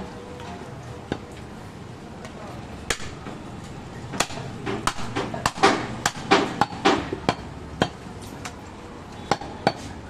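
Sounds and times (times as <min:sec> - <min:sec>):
cleaver chopping on wooden block: 0:04.2 - 0:08.0.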